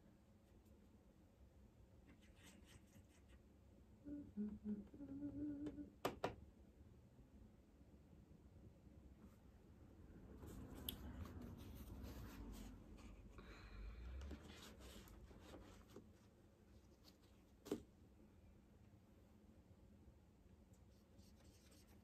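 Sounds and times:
brush rustling on paper towel: 0:10.4 - 0:13.3.

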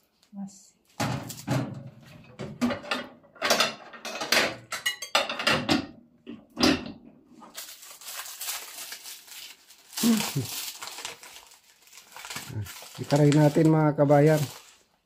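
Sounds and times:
paper rustling: 0:07.4 - 0:15.0.

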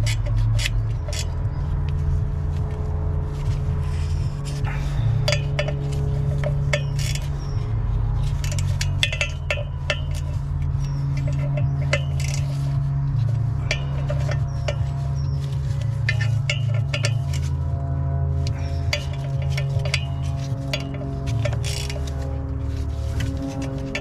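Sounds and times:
metallic clinks of wrench and bolts: 0:00.0 - 0:01.4, 0:05.2 - 0:07.6, 0:08.2 - 0:12.6, 0:13.6 - 0:17.6, 0:18.4 - 0:22.2
low hum: 0:00.0 - 0:24.0.

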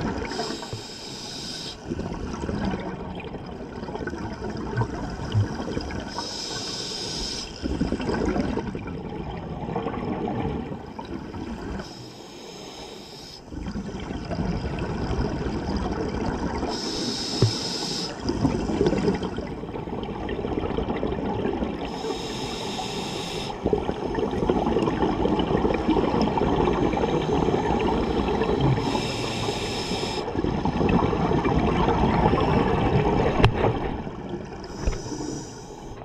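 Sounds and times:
regulator hissing inhalations: 0:00.3 - 0:01.8, 0:06.1 - 0:07.6, 0:11.8 - 0:13.5, 0:16.7 - 0:18.2, 0:21.9 - 0:23.6, 0:27.2 - 0:30.3, 0:34.6 - 0:36.0.

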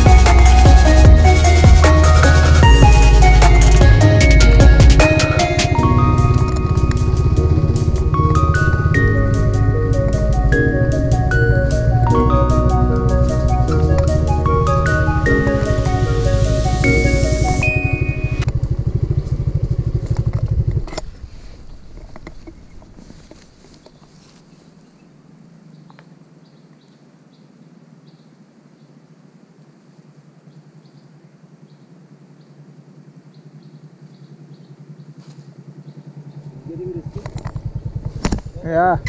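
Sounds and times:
background music with beat: 0:00.0 - 0:18.4
motorcycle engine idling: 0:00.0 - 0:23.8, 0:32.2 - 0:39.0.

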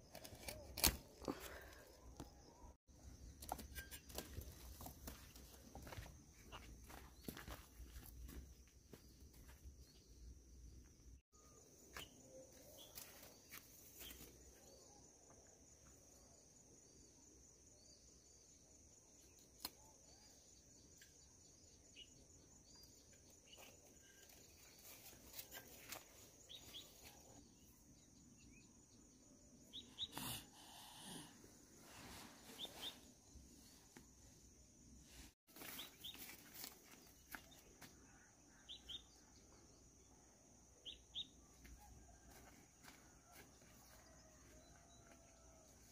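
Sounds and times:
bird chirps: 0:19.2 - 0:30.3, 0:32.2 - 0:33.8, 0:37.1 - 0:39.8, 0:40.7 - 0:41.6.

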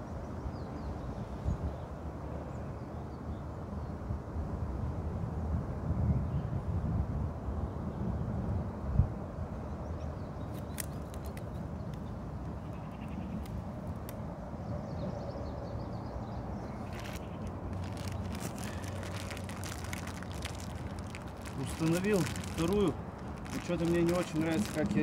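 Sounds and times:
wind rumbling on microphone: 0:04.0 - 0:25.0
package crackling and clicking: 0:10.5 - 0:12.1, 0:13.3 - 0:14.2, 0:16.8 - 0:25.0.

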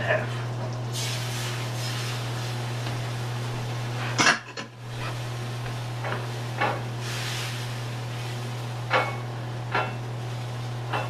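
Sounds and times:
steady low hum: 0:00.0 - 0:11.0
pan hissing: 0:00.9 - 0:02.7, 0:06.3 - 0:08.8
kitchenware clatter: 0:04.2 - 0:04.7, 0:08.9 - 0:10.0.

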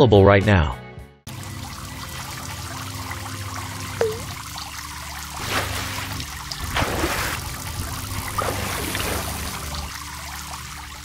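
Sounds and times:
water drop plop: 0:04.0 - 0:04.4
water splashing and rushing: 0:05.0 - 0:11.0.

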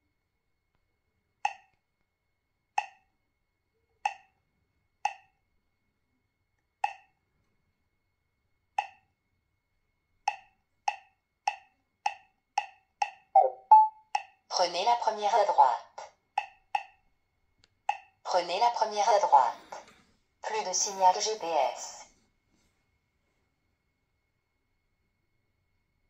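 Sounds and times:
key click tones: 0:13.4 - 0:13.9
brief electronic tone: 0:13.4 - 0:14.0.

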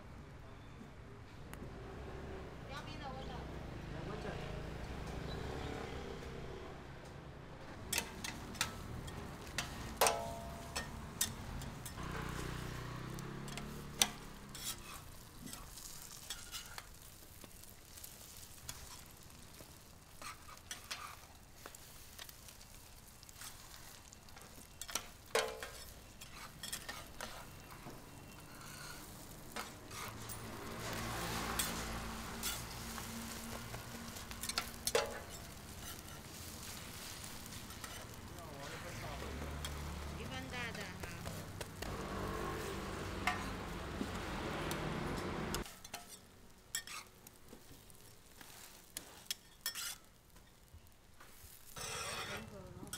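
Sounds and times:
pancake sizzling on griddle: 0:07.7 - 0:52.9
metal spatulas scraping and tapping: 0:07.9 - 0:12.3, 0:13.4 - 0:16.9, 0:20.2 - 0:21.3, 0:24.8 - 0:36.8, 0:37.5 - 0:38.9, 0:43.2 - 0:43.6, 0:45.6 - 0:47.1, 0:48.4 - 0:50.6, 0:51.7 - 0:52.9.

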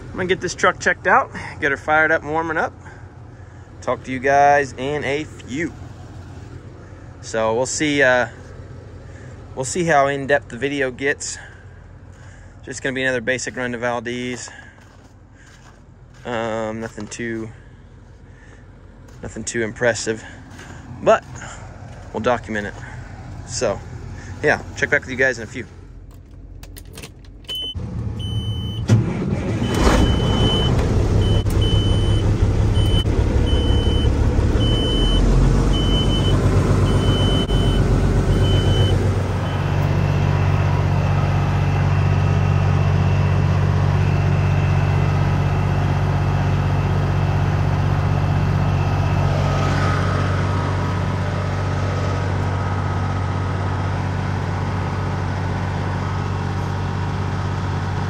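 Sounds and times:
diesel truck engine starting and idling: 0:00.0 - 0:58.0
high warning beeps: 0:27.5 - 0:28.8, 0:29.7 - 0:35.2, 0:35.8 - 0:40.3.

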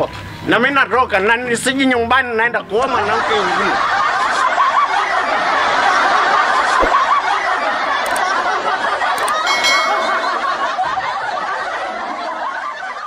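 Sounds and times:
crowd laughing: 0:03.0 - 0:13.0
faint clicks: 0:08.0 - 0:08.3
short ringing chime: 0:09.4 - 0:10.8.

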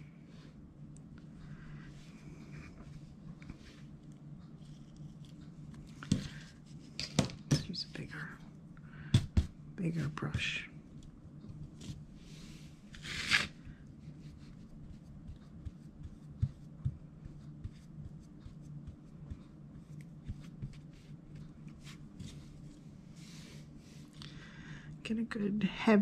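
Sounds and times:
low steady hum: 0:00.0 - 0:26.0
paintbrush strokes: 0:01.9 - 0:07.0, 0:14.0 - 0:24.1
brush scrape: 0:04.6 - 0:07.0, 0:11.6 - 0:24.1.

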